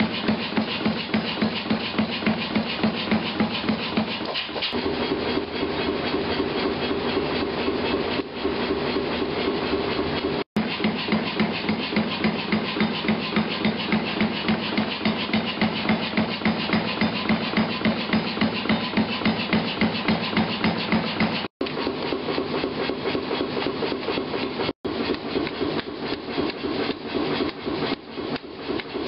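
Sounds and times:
hammer on metal: 0.0 - 4.4, 10.6 - 21.5
rubbing rasping sound: 0.0 - 29.0.

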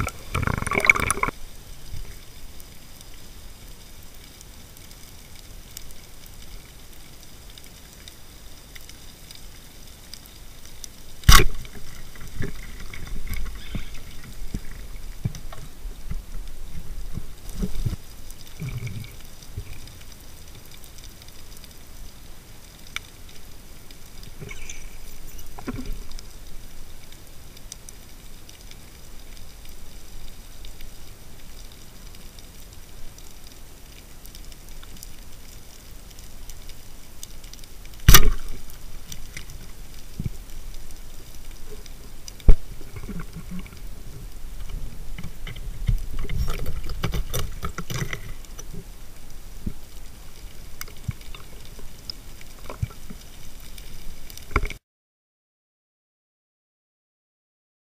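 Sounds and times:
faint clicks: 0.0 - 54.8
low rumble of water movement: 0.0 - 54.8
muffled underwater noise: 11.3 - 21.0, 24.0 - 28.6.

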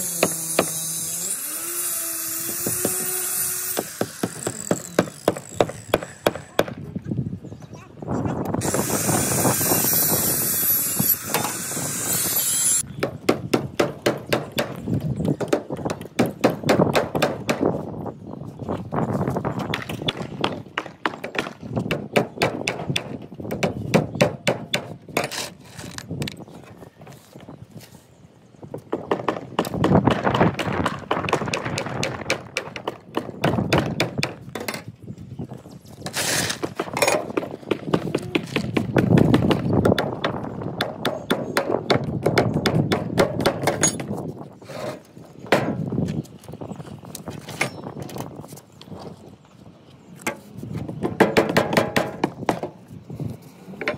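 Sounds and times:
circular saw cutting wood: 0.0 - 6.6, 8.6 - 12.8
hammer driving nails: 0.0 - 6.8, 8.6 - 17.7, 36.0 - 44.2, 51.0 - 52.7.

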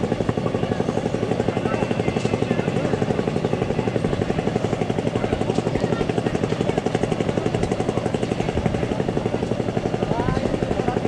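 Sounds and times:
small engine running: 0.0 - 11.0.

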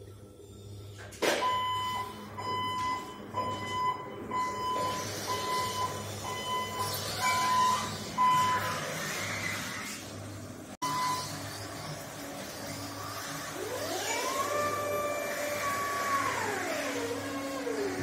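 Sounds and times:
truck warning beeper: 1.4 - 8.8, 10.8 - 11.4.

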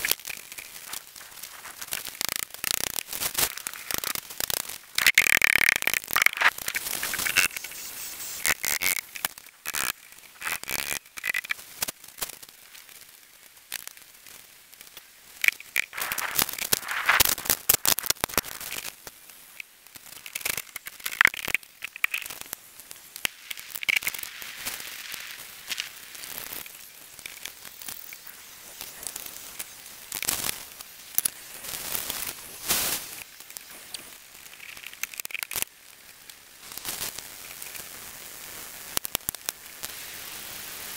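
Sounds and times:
wood fire crackling: 0.0 - 40.3
wooden poles clicking and scraping: 8.4 - 11.6.

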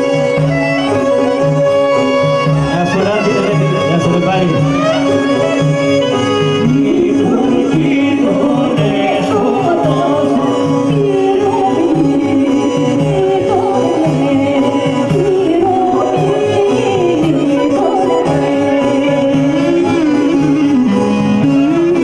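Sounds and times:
clarinet melody: 0.0 - 22.0
woman singing: 6.6 - 22.0.

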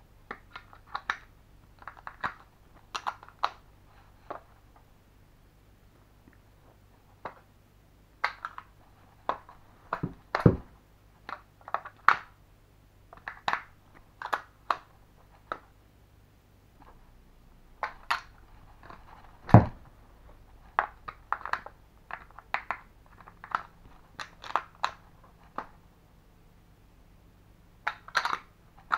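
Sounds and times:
heavier knocks: 19.4 - 19.9.

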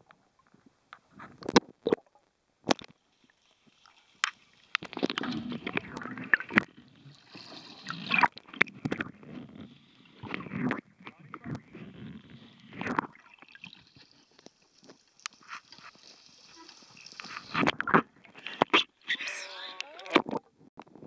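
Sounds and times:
water gurgling and sloshing: 0.0 - 20.4
bubbling water: 3.8 - 18.9.

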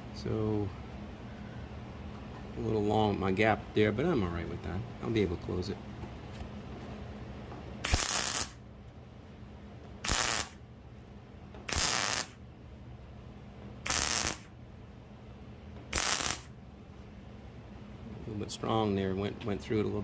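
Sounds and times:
welding arc crackling: 7.8 - 8.6, 10.0 - 10.6, 11.7 - 12.4, 13.8 - 14.5, 15.9 - 16.5.

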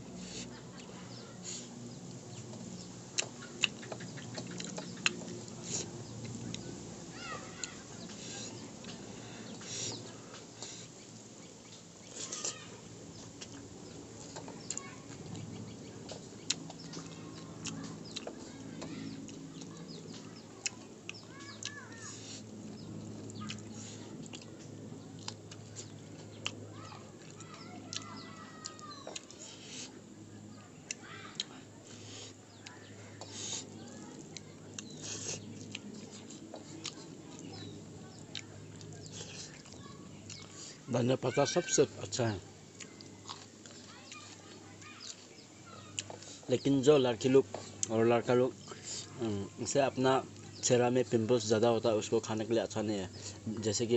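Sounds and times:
birds calling: 0.0 - 53.9
steady low hum: 0.0 - 53.9
wet eating clicks and smacks: 2.0 - 6.7, 13.1 - 40.7, 42.7 - 46.4, 47.4 - 48.0
wet mouth smacks and chewing: 3.1 - 6.6, 14.3 - 18.4, 22.8 - 26.6, 34.3 - 37.7.

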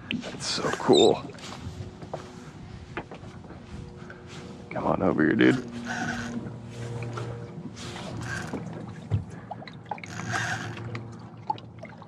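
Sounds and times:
light water sounds: 5.6 - 12.0
water splashing: 5.6 - 12.0.

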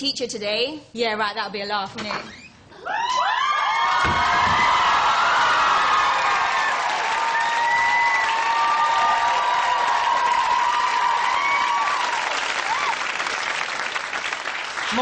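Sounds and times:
high whoops: 2.7 - 13.2
audience clapping and cheering: 3.2 - 15.0.

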